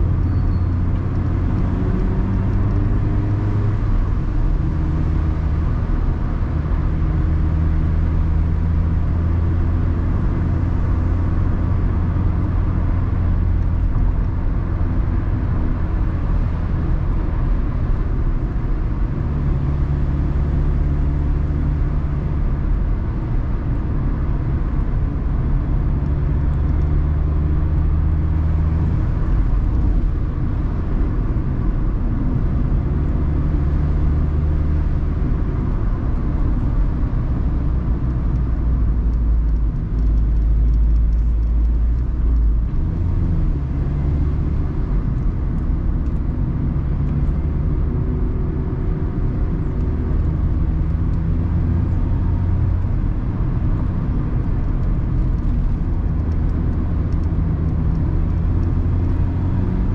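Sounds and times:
car engine running: 0.0 - 59.9.

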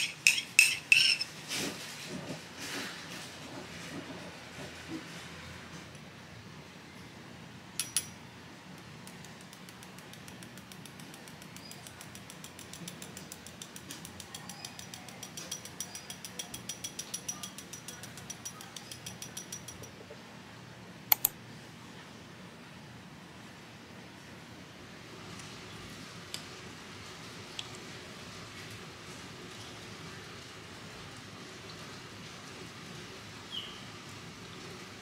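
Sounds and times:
sharp double click: 21.1 - 21.4.

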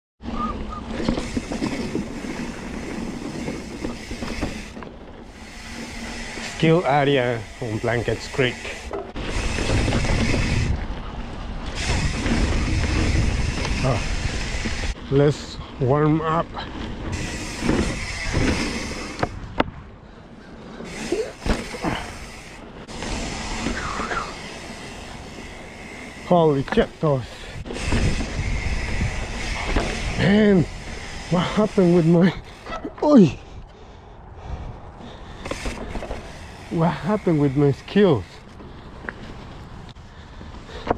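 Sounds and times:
bike tyres rumbling on dirt: 0.2 - 33.2, 35.0 - 40.9
bike rattles and clicks: 0.2 - 40.9
air rush: 20.5 - 31.8.

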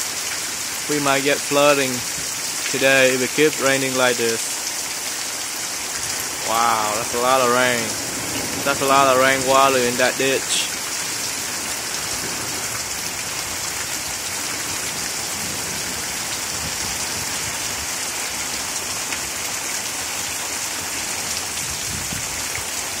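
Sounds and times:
heavy rain pouring: 0.0 - 23.0.

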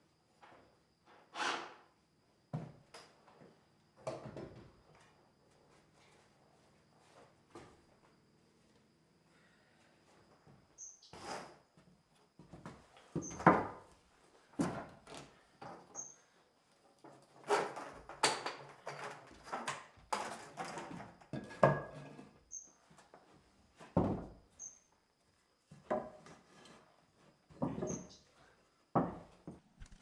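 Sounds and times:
timber boards knocking on wooden floor: 23.9 - 24.3.

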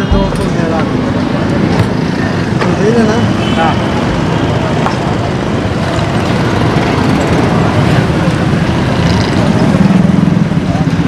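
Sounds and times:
street traffic: 0.0 - 11.0.

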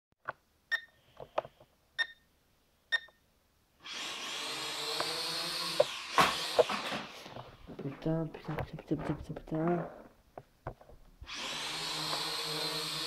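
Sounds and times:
quadcopter motors whirring: 3.8 - 7.2, 11.2 - 13.0.

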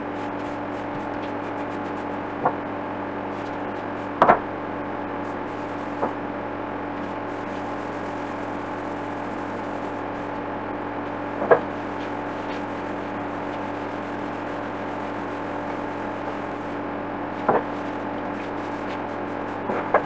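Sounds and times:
humming drone: 0.0 - 20.0.

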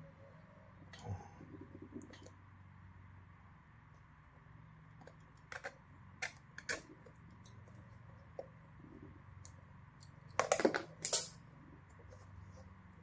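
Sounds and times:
faint steady hum: 0.0 - 13.0
small metal parts clicking: 10.0 - 11.4.

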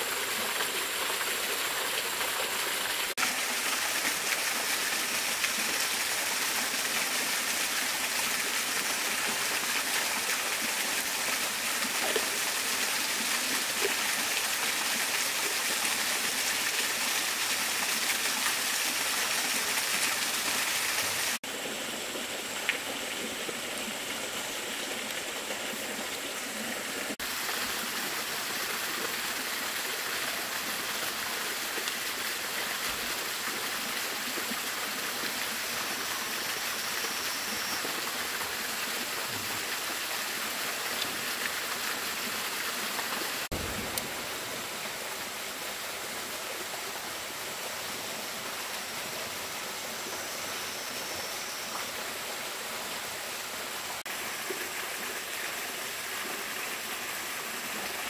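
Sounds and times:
stream and waterfall rushing: 0.0 - 58.0.

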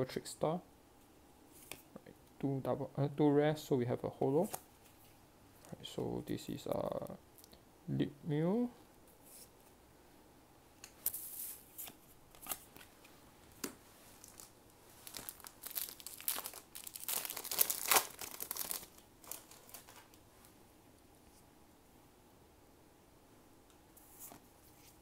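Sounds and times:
crinkly rustling: 13.9 - 20.6.

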